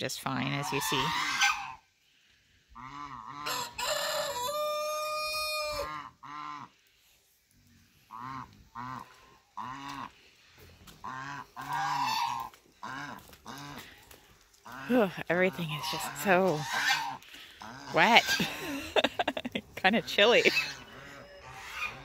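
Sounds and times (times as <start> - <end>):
geese honking: 0.3 - 1.9, 2.7 - 6.8, 7.9 - 22.0
rooster crowing: 3.4 - 6.0.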